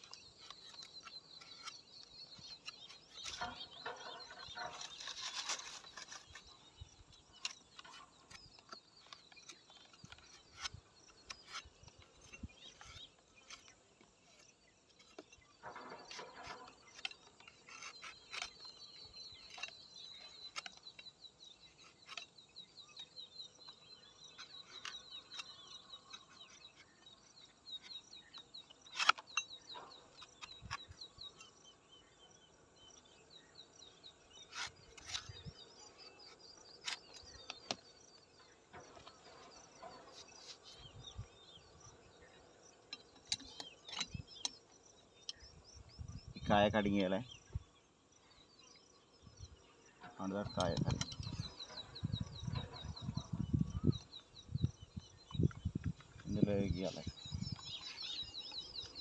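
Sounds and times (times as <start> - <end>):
knife clicks and scrapes: 0.0 - 6.6, 7.2 - 22.5, 24.3 - 27.0, 27.7 - 31.5, 34.4 - 37.9, 42.9 - 44.6.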